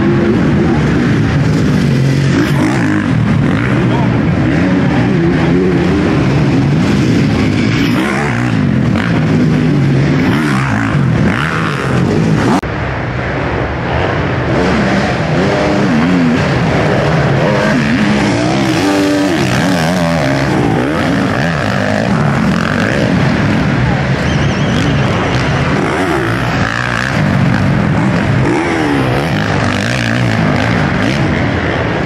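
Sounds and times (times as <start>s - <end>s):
motocross engines revving: 0.0s - 32.0s.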